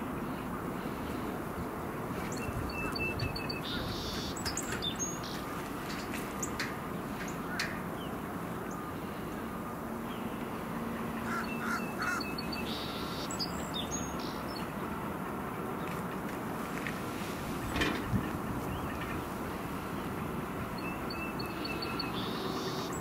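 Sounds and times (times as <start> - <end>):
distant diesel rumble: 0.0 - 23.0
crow cawing: 11.2 - 13.0.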